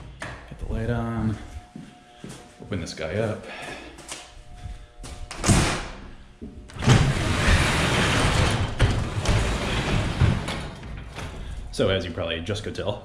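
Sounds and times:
garage door clunk: 0:05.3 - 0:06.1, 0:06.7 - 0:11.7
garage door rumbling up: 0:06.7 - 0:11.9.

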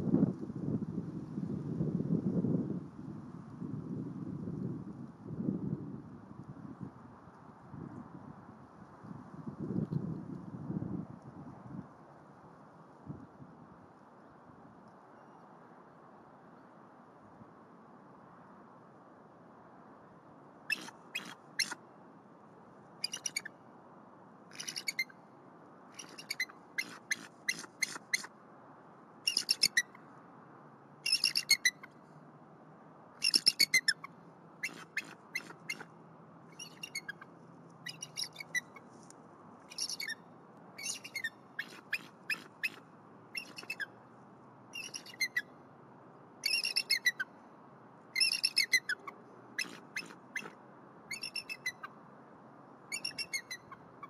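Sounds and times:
eagles high-pitched piping calls: 0:20.7 - 0:21.8, 0:23.0 - 0:23.5, 0:29.3 - 0:29.8, 0:31.0 - 0:31.7, 0:44.8 - 0:45.4, 0:46.4 - 0:47.3.

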